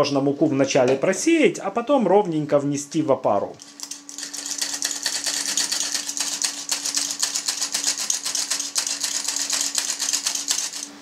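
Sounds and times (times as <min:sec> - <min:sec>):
flour sifter clicking and rasping: 0:03.6 - 0:11.0.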